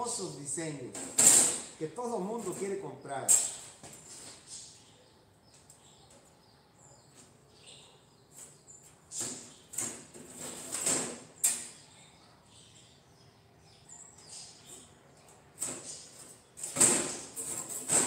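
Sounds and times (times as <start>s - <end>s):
sheet metal scraping: 15.6s - 18.0s.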